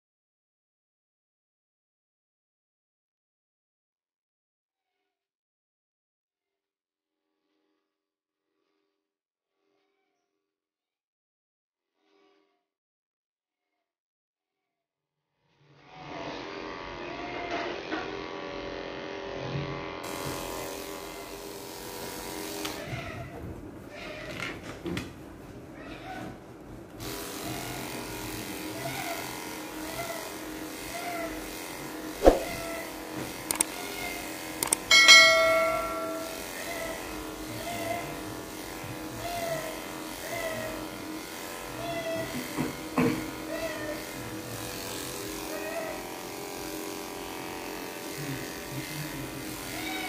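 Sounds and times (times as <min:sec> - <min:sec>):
electric clippers buzzing: 0:16.0 - 0:23.3, 0:27.0 - 0:50.0
clicks: 0:33.5 - 0:33.7, 0:34.6 - 0:34.9.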